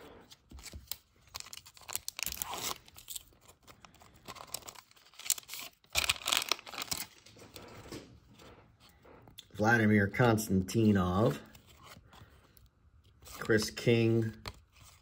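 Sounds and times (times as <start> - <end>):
foil wrapper crinkling: 0.7 - 7.8
foil pack tearing open: 1.2 - 3.4, 4.2 - 7.2.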